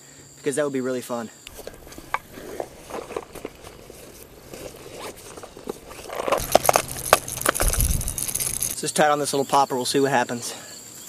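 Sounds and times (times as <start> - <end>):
rustling in a bag: 1.5 - 8.8
zipper opening: 1.5 - 8.8.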